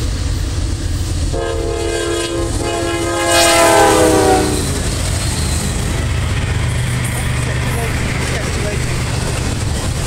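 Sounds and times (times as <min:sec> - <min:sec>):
locomotive engines rumbling: 0:00.0 - 0:10.0
locomotive air horn chord: 0:01.3 - 0:04.8.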